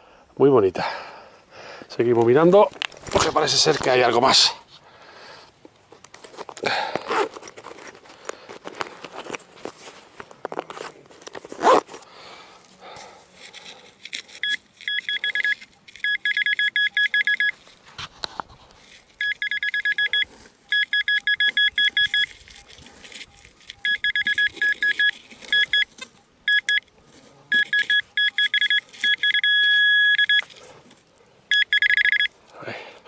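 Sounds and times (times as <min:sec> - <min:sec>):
metal detector beeping: 0:14.3 - 0:17.6, 0:19.2 - 0:30.6, 0:31.5 - 0:32.4.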